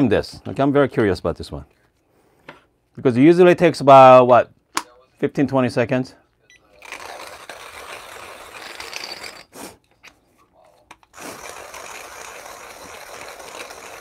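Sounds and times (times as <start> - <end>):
hand grinder grinding coffee beans: 6.8 - 9.6, 11.1 - 14.0.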